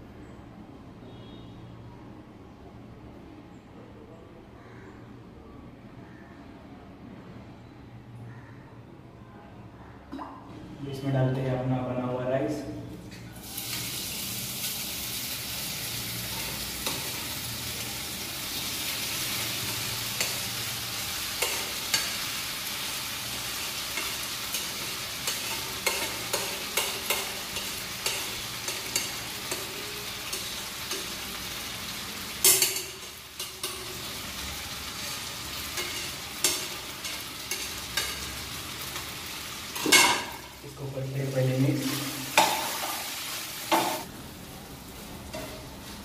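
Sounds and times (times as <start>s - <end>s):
rice sizzling in hot oil: 13.4s - 46.0s.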